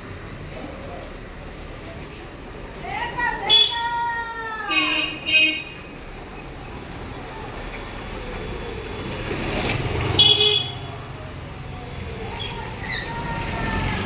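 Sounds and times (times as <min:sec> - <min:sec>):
passing road traffic rumble: 0:00.0 - 0:14.0
vehicle horn toot: 0:10.2 - 0:10.9.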